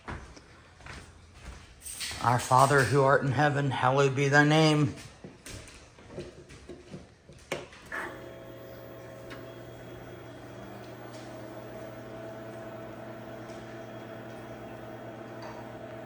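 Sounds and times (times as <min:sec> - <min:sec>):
computer low hum: 0:08.0 - 0:16.0.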